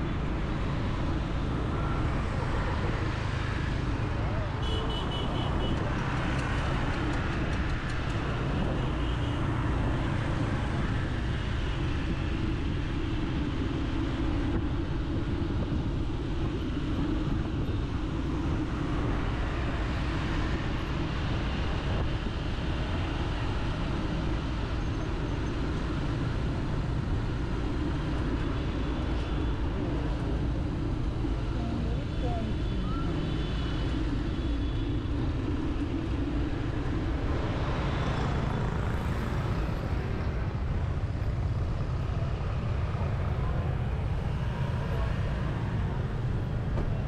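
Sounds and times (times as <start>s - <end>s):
street traffic: 0.0s - 47.0s.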